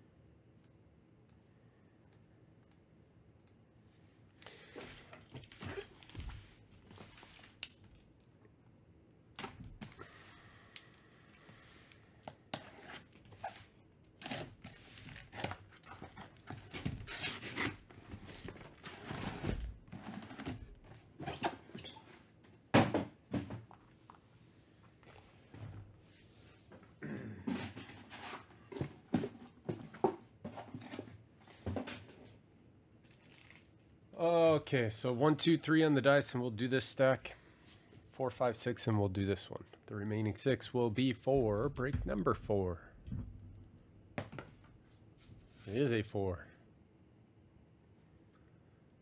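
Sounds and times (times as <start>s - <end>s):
plastic wrap crinkling: 33.0s - 33.9s.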